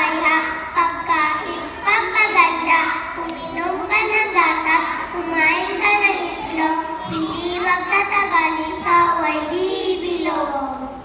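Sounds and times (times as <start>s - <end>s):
girls singing together: 0.0s - 9.7s.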